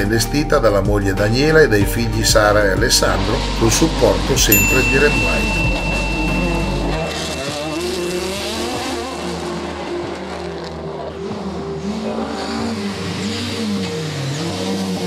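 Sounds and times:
race car engines accelerating: 0:05.8 - 0:15.0.

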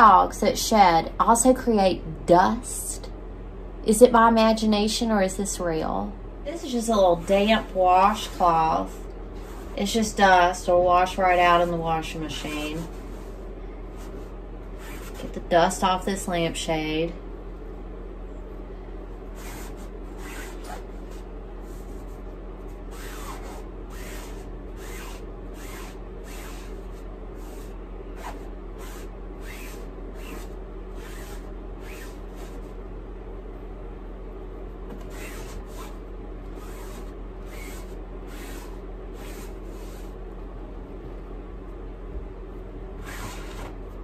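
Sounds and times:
steady low hum: 0:00.0 - 0:44.0
cloth rubbing a lampshade: 0:06.6 - 0:10.2, 0:11.1 - 0:15.4, 0:19.3 - 0:32.8, 0:35.0 - 0:40.2, 0:43.0 - 0:43.8.

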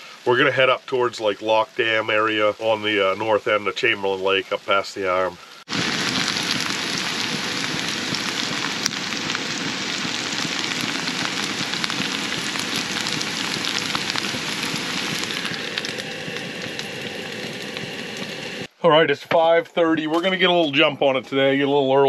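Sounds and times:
vegetables sizzling in a pan: 0:05.2 - 0:18.7.

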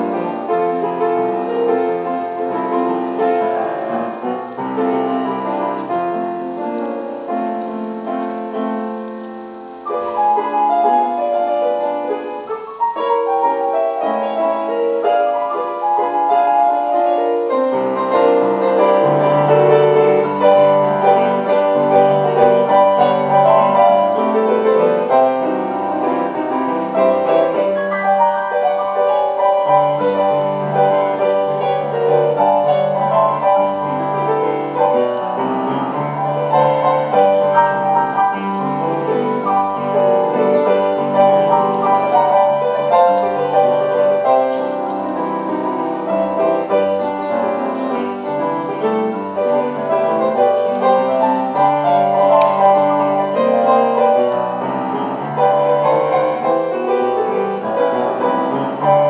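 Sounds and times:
slow piano piece: 0:00.0 - 0:59.0.

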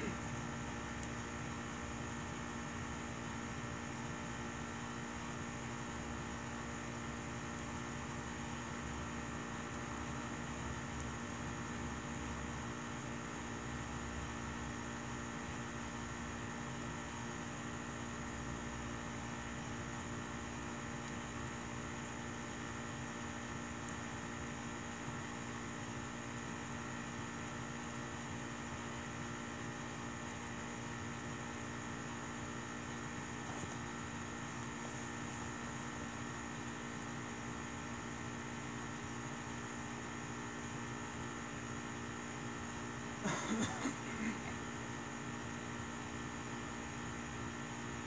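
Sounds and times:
electrical hum with hiss: 0:00.0 - 0:48.0
wood fire crackles: 0:00.5 - 0:03.0.

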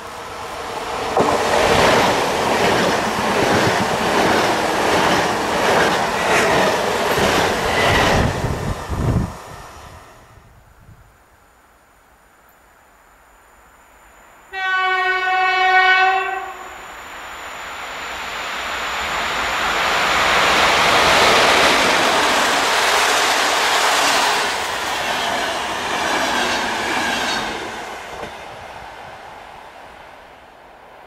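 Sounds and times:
train wheels rolling on rails: 0:00.0 - 0:10.3, 0:16.8 - 0:31.0
train horn blast: 0:14.5 - 0:16.9.

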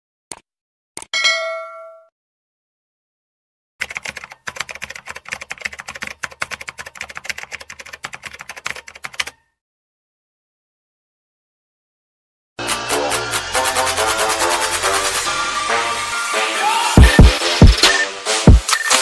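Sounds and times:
notification bell ding: 0:01.2 - 0:02.1
rapid keyboard typing: 0:03.8 - 0:09.4.

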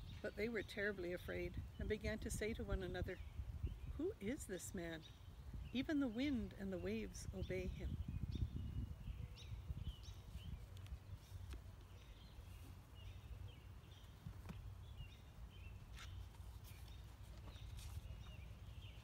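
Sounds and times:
small birds chirping: 0:00.0 - 0:19.0
paper rustling: 0:15.9 - 0:18.4.

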